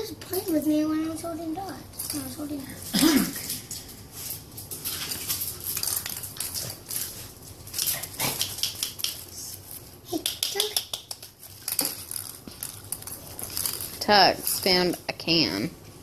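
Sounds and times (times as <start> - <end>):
puppy claws clicking on floor: 3.3 - 15.0.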